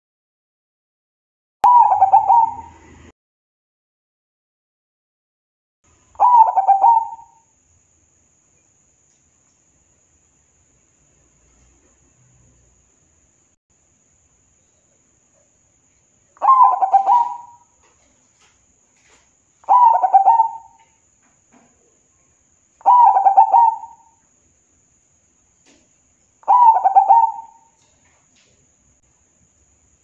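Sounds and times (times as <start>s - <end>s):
dove cooing: 1.7s - 2.9s, 6.2s - 7.4s, 16.4s - 17.8s, 19.6s - 20.9s, 22.8s - 24.2s, 26.4s - 27.8s.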